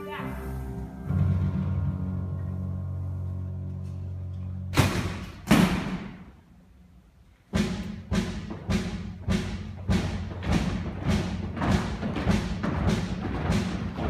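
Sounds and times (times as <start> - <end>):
orchestra playing: 0.0 - 4.7
loud percussion hits: 7.5 - 14.0
steady beat of struck hits: 7.5 - 14.0.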